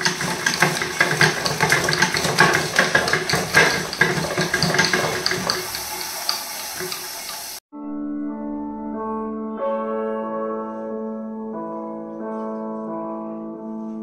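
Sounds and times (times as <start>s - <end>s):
bicycle chain clattering: 0.0s - 5.7s.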